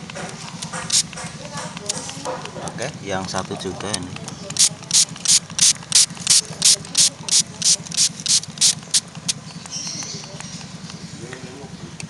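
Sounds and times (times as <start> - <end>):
spray bottle hissing: 0.6 - 1.2, 4.4 - 9.3.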